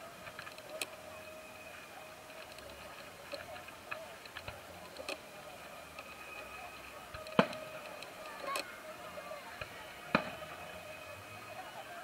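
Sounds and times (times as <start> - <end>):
distant firework bangs: 7.2 - 7.8, 9.6 - 10.8.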